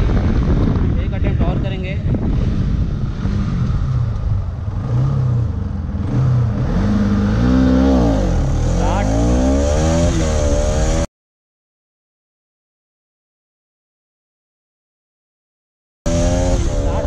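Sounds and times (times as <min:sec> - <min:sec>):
motorcycle engine accelerating: 0:00.0 - 0:11.1, 0:16.1 - 0:17.0.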